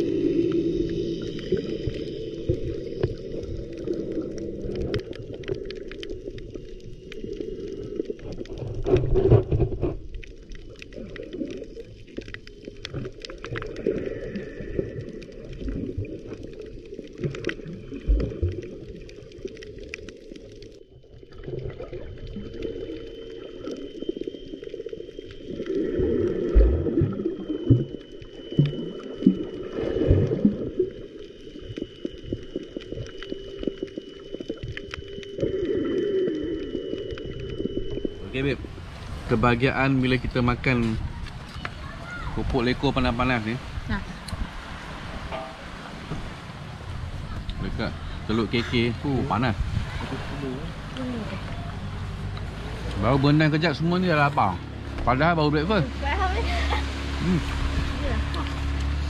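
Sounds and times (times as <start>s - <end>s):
underwater water movement: 0.0s - 59.0s
sharp clicks underwater: 0.1s - 38.2s.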